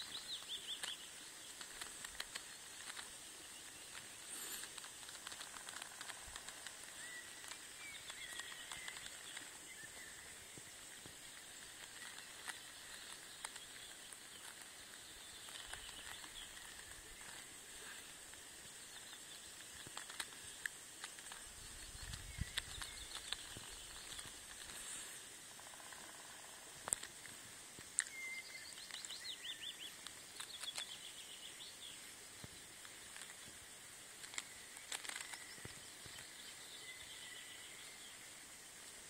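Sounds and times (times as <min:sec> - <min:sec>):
faint bird chirps: 0:00.0 - 0:26.9, 0:28.0 - 0:33.7, 0:34.3 - 0:38.5
steady high hiss: 0:00.0 - 0:39.0
wind rumble on microphone: 0:21.6 - 0:23.1.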